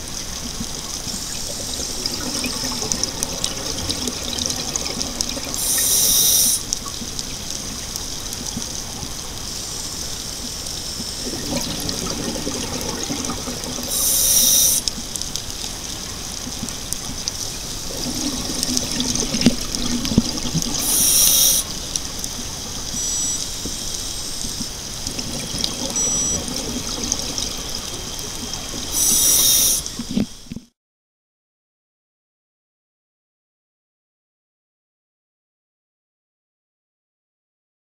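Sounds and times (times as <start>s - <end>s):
steady background hiss: 0.0s - 30.5s
bubbles burbling: 0.4s - 9.1s, 11.0s - 23.0s, 25.0s - 30.1s
regulator breathing hiss: 5.6s - 6.7s, 13.9s - 14.9s, 20.8s - 21.8s, 28.8s - 30.1s.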